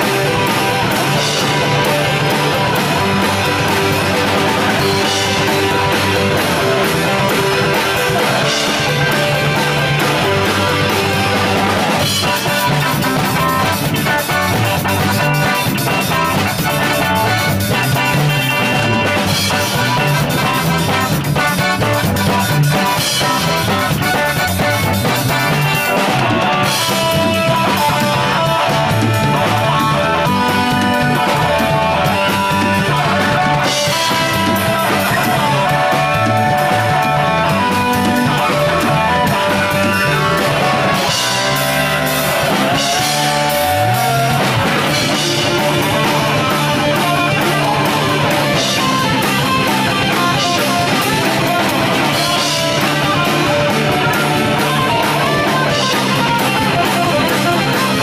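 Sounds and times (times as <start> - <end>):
punk rock band playing live: 0.0 - 58.0
sliding low guitar notes: 0.0 - 58.0.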